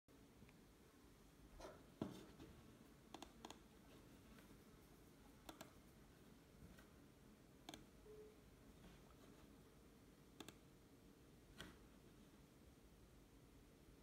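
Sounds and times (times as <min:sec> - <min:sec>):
computer mouse clicks: 0:03.1 - 0:03.7, 0:05.4 - 0:05.8, 0:07.6 - 0:07.9, 0:10.4 - 0:10.7.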